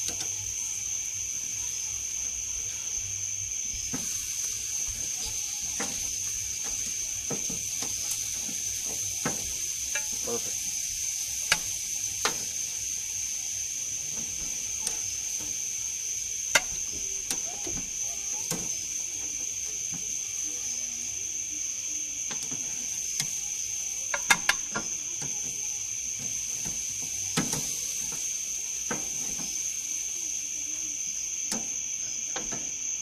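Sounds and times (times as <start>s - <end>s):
insect trill: 0.0s - 33.0s
steaks sizzling on grill: 0.0s - 33.0s.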